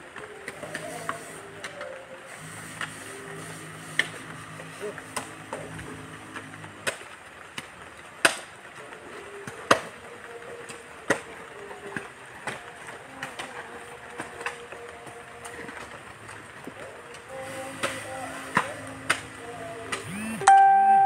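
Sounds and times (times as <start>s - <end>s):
low steady hum: 2.3s - 6.8s, 14.7s - 21.0s.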